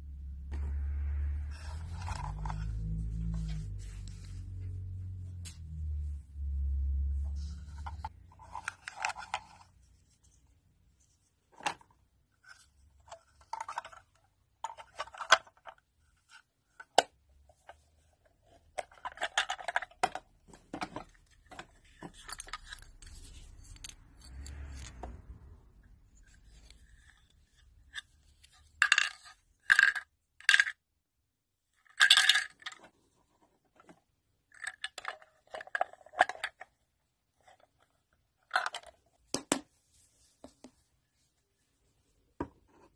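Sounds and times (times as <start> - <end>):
plastic toy clattering: 7.8 - 9.8, 11.5 - 17.8, 18.4 - 23.9, 26.4 - 30.8, 31.8 - 33.1, 33.7 - 36.8, 37.4 - 39.7.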